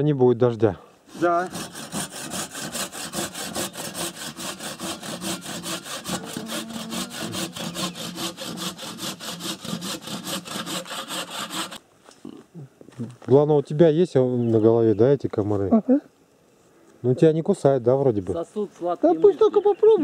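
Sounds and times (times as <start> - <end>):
hand saw cutting wood: 1.1 - 11.8.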